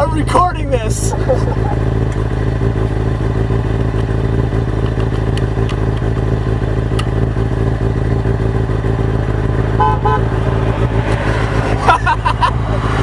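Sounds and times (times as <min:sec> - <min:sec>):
motorcycle engine idling: 0:00.0 - 0:11.2.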